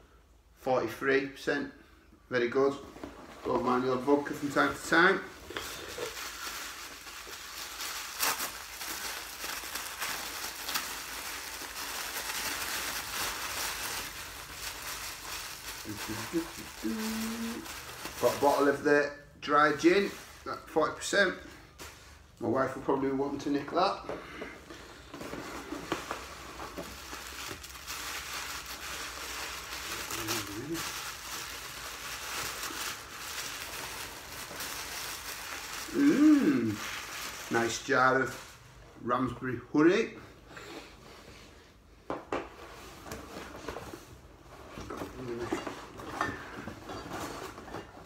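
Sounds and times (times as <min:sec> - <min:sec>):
paper wrapping crinkling: 0:03.5 - 0:18.8, 0:25.1 - 0:38.6.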